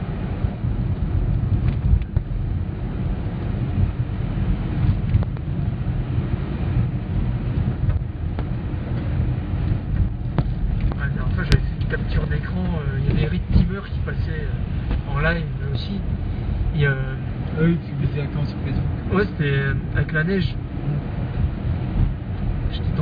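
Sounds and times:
car engine and road rumble: 0.0 - 23.0.

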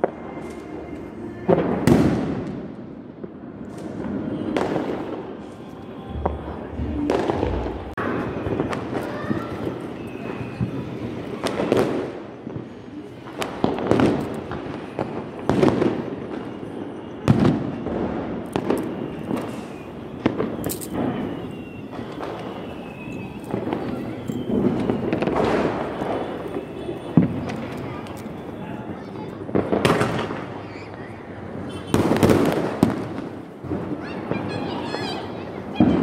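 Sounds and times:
faint firework whistles: 0.0 - 36.0
loud firecracker bangs: 1.4 - 36.0
distant firecracker pops: 17.3 - 28.4, 29.5 - 30.9, 31.6 - 34.4
steady crackling din: 17.6 - 30.6.

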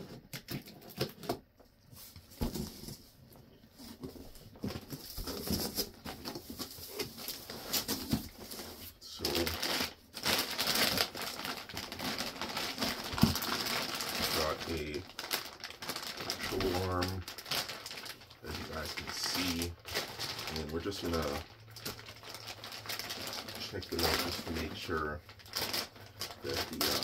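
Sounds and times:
packaging rustling and crinkling: 0.0 - 27.0.

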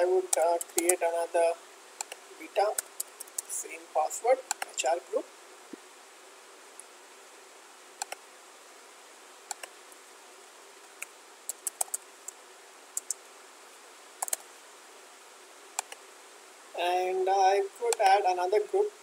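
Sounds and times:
faint steady hum: 0.0 - 19.0
keyboard and mouse clicks: 0.3 - 1.0, 2.0 - 3.5, 4.5 - 4.8, 8.0 - 8.2, 9.5 - 9.7, 11.0 - 12.4, 13.0 - 13.2, 14.2 - 14.4, 15.8 - 16.0.

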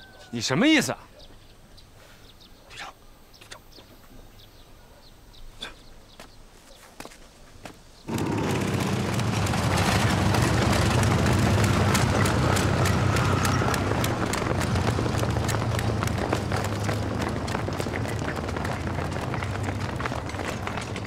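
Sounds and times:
motorcycle engine running: 8.1 - 21.0
soldiers running in boots: 8.1 - 21.0.

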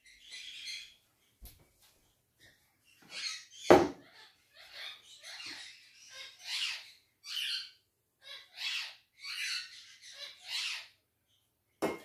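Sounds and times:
bird squawking: 3.1 - 11.0.

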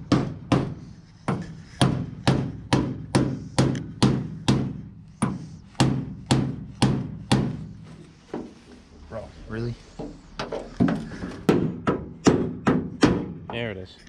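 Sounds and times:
hammer striking metal: 0.1 - 7.6.

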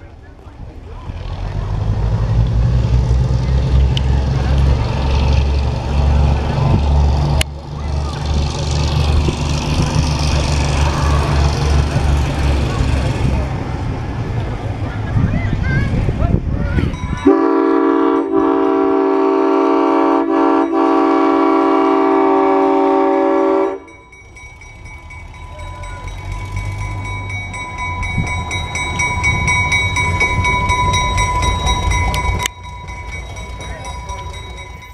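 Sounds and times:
diesel locomotive engine: 0.0 - 34.9
locomotive air horn chord: 17.2 - 23.9.

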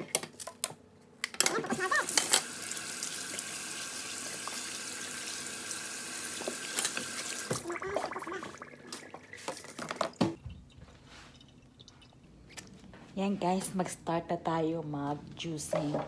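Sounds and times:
kitchen faucet running: 1.6 - 12.2.

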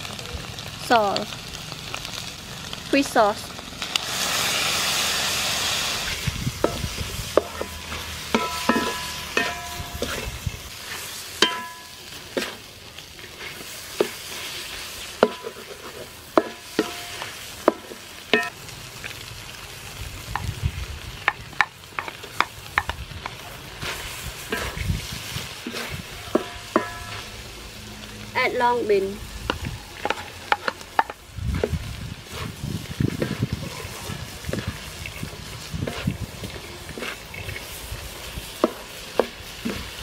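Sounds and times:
food sizzling in a wok: 0.0 - 40.0
spatula knocking on metal wok: 6.6 - 9.8.

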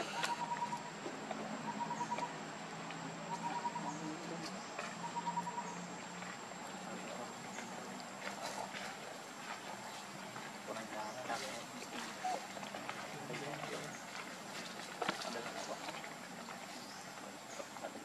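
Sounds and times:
animal pulsed trills: 0.0 - 1.0, 1.6 - 2.4, 3.2 - 7.8.

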